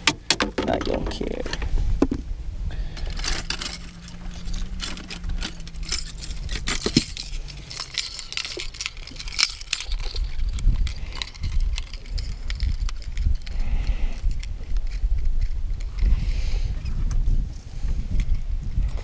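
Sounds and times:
metal hooks clinking and jangling: 2.9 - 16.2.

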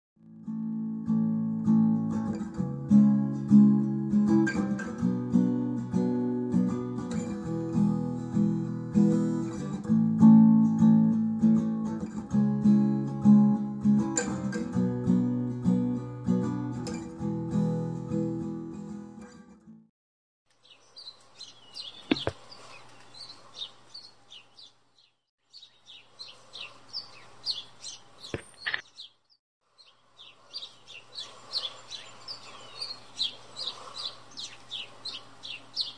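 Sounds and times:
mellow guitar music: 0.2 - 19.9
small birds chirping: 20.5 - 35.9
sharp clicks: 28.3 - 28.8.

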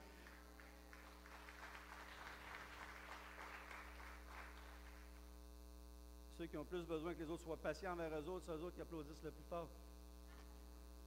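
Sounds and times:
congregation applauding: 0.0 - 5.3.

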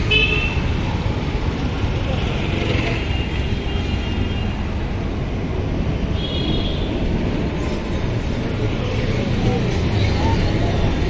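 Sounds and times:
street traffic rumble: 0.0 - 11.0.

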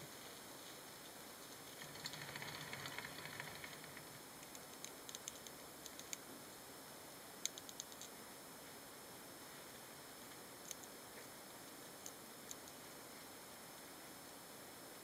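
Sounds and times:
rustle of seeds and sand: 0.0 - 4.0
faint steady hiss: 0.0 - 15.0.

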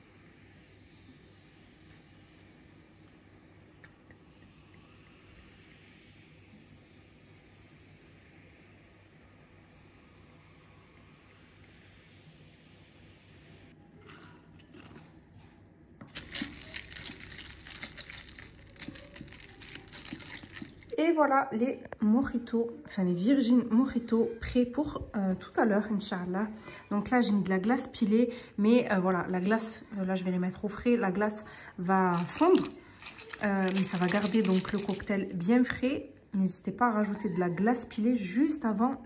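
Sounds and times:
lemonade fizzing over ice: 16.0 - 21.0, 31.8 - 35.9.

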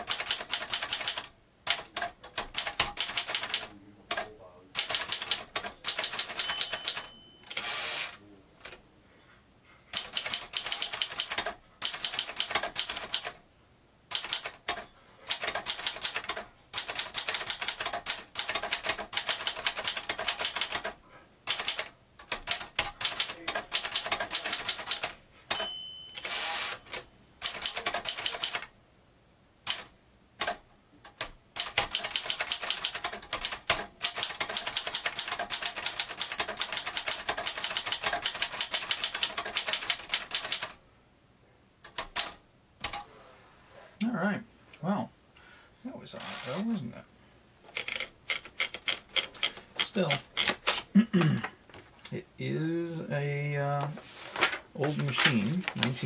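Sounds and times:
typewriter carriage return: 0.0 - 8.8, 10.0 - 13.4, 14.1 - 20.9, 21.5 - 28.7, 31.2 - 40.8, 47.7 - 50.9, 54.3 - 56.0
typewriter keystrokes: 0.0 - 8.8, 10.0 - 13.4, 14.1 - 25.6, 26.2 - 28.7, 29.7 - 40.8, 47.7 - 50.9
typewriter margin bell: 4.8 - 8.1, 23.0 - 28.5.

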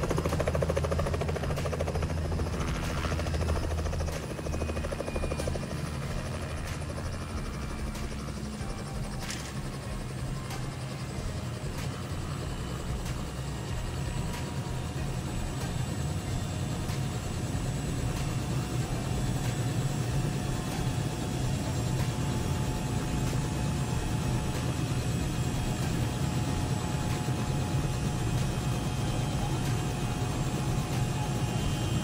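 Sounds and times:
helicopter idling: 0.0 - 32.0.

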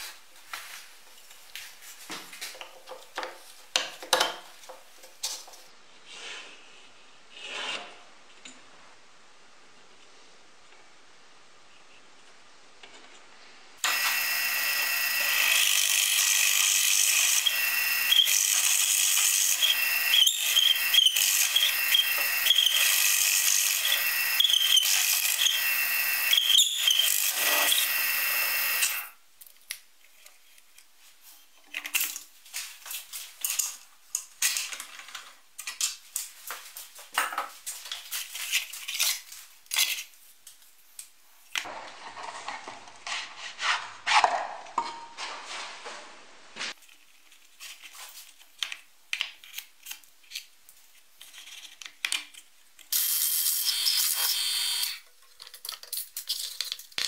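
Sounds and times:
drill press boring through plywood: 13.8 - 29.1.

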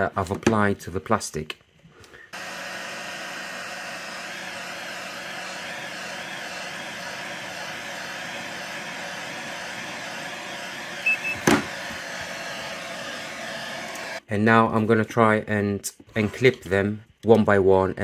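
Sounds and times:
heat gun blowing: 2.3 - 14.2
short high beeps: 11.0 - 11.4.

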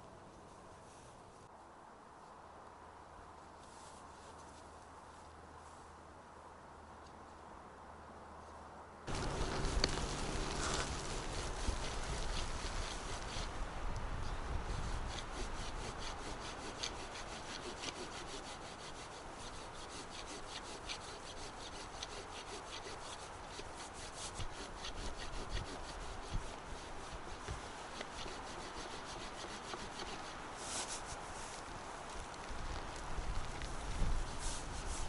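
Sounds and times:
hand tool rasping wood: 9.1 - 13.5, 14.7 - 31.1.

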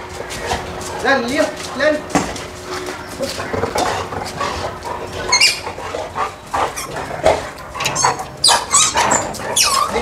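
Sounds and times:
dog squeaking and whining: 5.2 - 5.8, 6.7 - 7.1, 7.8 - 10.0.

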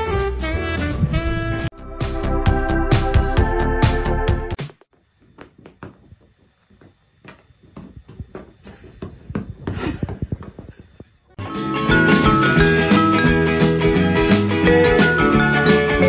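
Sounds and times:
swing brass music: 0.0 - 1.7.

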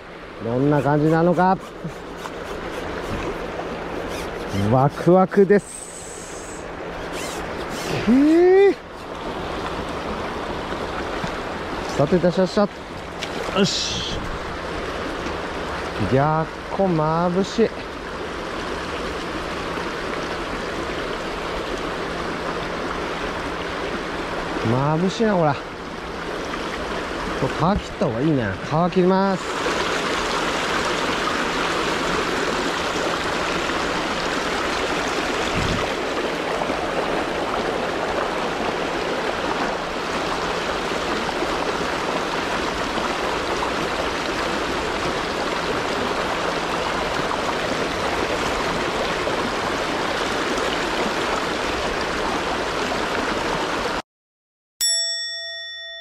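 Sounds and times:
river rushing over stones: 0.0 - 54.0
bright chime ringing: 54.8 - 56.0.

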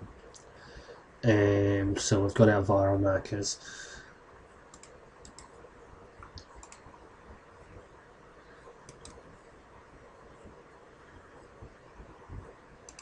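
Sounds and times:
low room hiss: 0.0 - 13.0
computer mouse clicks: 4.7 - 5.6, 6.2 - 6.9, 8.8 - 9.3.

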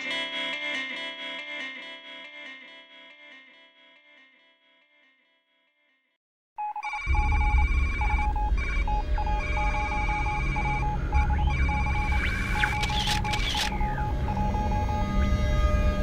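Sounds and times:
short electronic beeps: 6.6 - 15.0
deep rumbling drone: 7.1 - 16.0
sweeping electronic glides: 9.0 - 16.0.

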